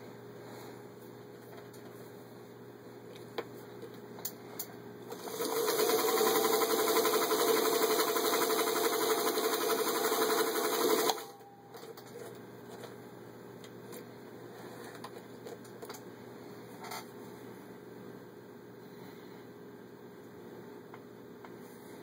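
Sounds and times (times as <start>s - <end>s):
sewing machine running: 5.1s - 11.3s.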